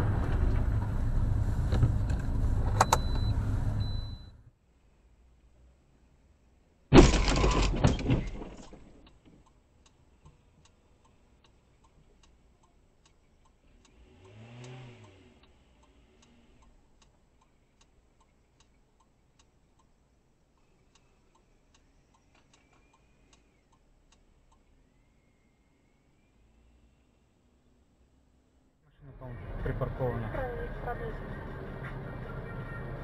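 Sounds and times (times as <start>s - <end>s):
car collision crunch: 6.9s - 9.0s
faint steady ticking: 9.0s - 28.8s.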